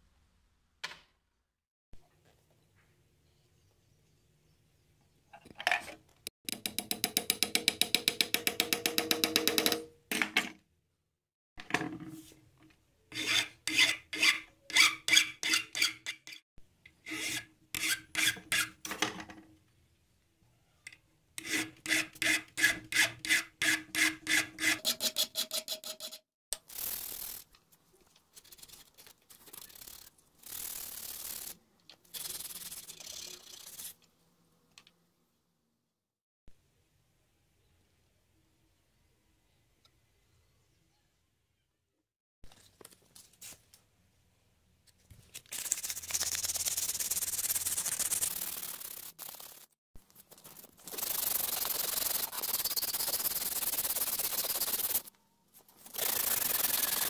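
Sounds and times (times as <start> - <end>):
metal rivets being sawn: 13.1 - 16.4, 17.0 - 19.0, 21.4 - 27.5
sanding wood by hand: 50.6 - 55.1, 55.9 - 57.0.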